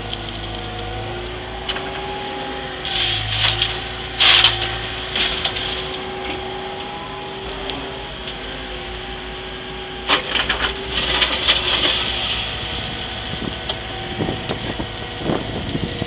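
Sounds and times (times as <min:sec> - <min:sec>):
gravel pouring into truck: 0:00.0 - 0:01.0, 0:02.8 - 0:06.3, 0:10.1 - 0:13.6
excavator engine and hydraulics: 0:00.0 - 0:16.0.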